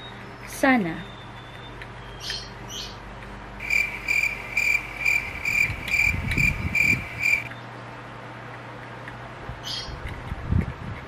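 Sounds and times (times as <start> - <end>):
rhythmic high-pitched chirping: 3.6 - 7.5.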